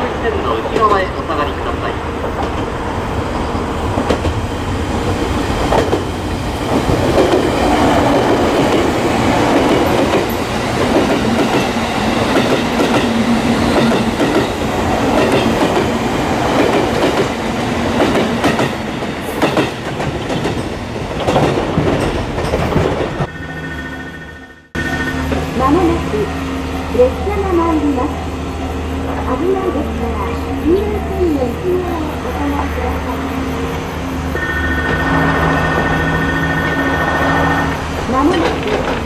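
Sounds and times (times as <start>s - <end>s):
train wheels rumbling: 0.0s - 39.0s
wheels clacking over rail joints: 3.9s - 23.4s, 34.4s - 39.0s.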